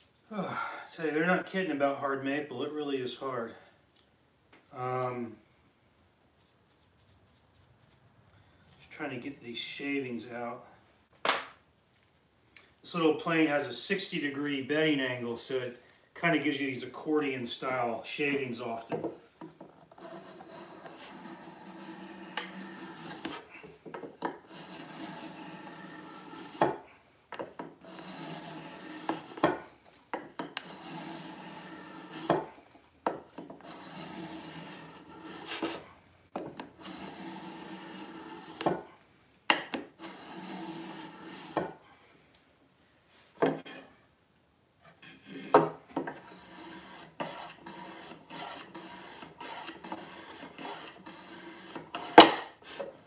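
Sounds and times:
hand plane rasping strokes: 19.1s - 38.9s, 39.5s - 41.9s, 44.8s - 53.0s.

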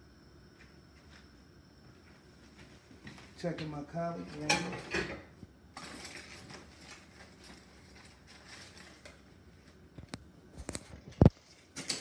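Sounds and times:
cookware clicks and knocks: 4.4s - 5.2s.

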